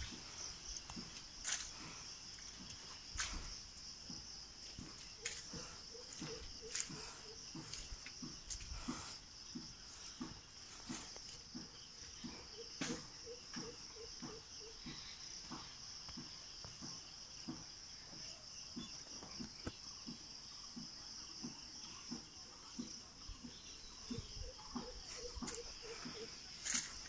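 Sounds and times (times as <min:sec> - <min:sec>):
footsteps on wet brick path: 0:00.0 - 0:13.8, 0:20.7 - 0:27.0
insects chirring: 0:00.0 - 0:27.0.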